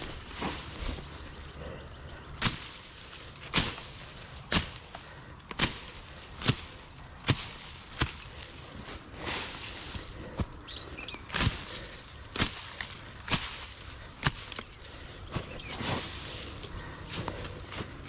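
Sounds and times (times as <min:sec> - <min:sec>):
sharp chopping strikes: 0:02.4 - 0:02.9, 0:03.5 - 0:08.4.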